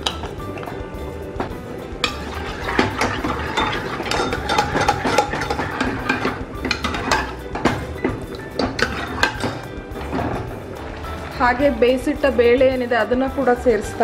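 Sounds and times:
ladle scraping metal pot: 0:02.0 - 0:12.3.

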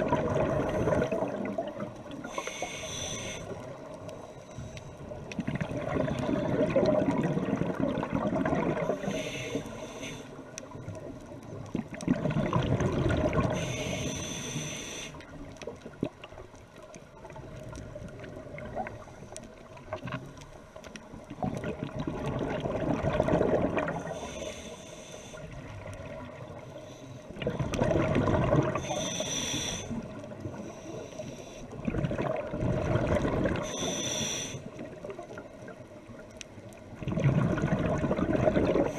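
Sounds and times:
bubbling exhaled air underwater: 0:00.0 - 0:04.2, 0:05.0 - 0:09.8, 0:10.4 - 0:24.5, 0:27.3 - 0:31.0, 0:31.7 - 0:38.9
regulator inhale hiss: 0:02.1 - 0:05.2, 0:08.9 - 0:10.7, 0:13.4 - 0:15.4, 0:24.0 - 0:25.8, 0:26.6 - 0:27.4, 0:28.8 - 0:31.8, 0:33.6 - 0:34.9.

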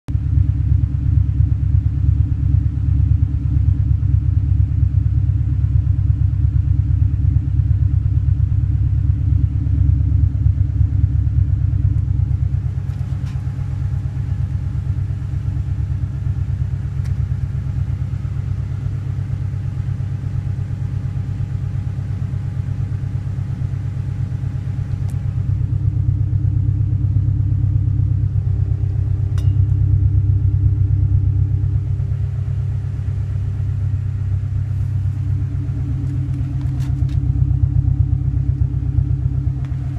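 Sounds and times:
car engine idling: 0:00.1 - 0:39.9.

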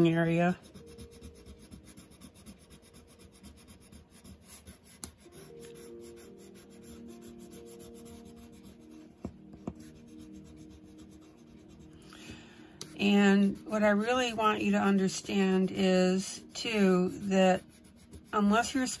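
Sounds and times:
colored pencil scratching paper: 0:00.0 - 0:12.0, 0:12.9 - 0:19.0.

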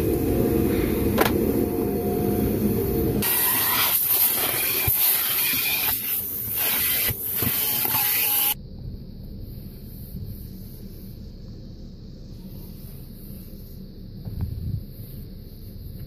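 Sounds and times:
vacuum low rumble: 0:00.0 - 0:07.4, 0:08.5 - 0:16.0
vacuum nozzle air hiss: 0:00.0 - 0:08.6.

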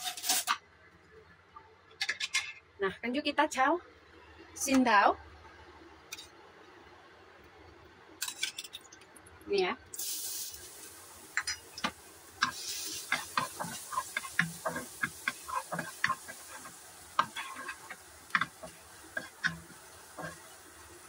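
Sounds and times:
garlic sizzling in oil: 0:09.9 - 0:21.0
wooden spatula scraping a wok: 0:11.8 - 0:21.0.

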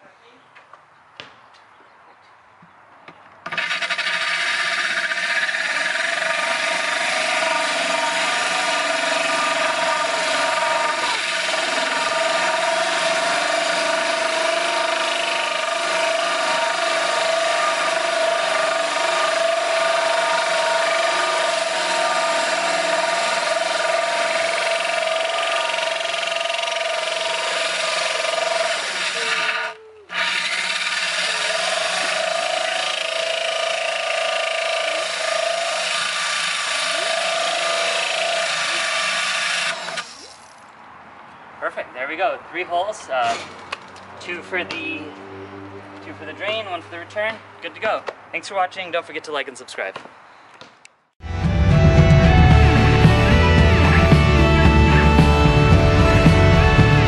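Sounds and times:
power drill grinding glass: 0:03.5 - 0:40.4.

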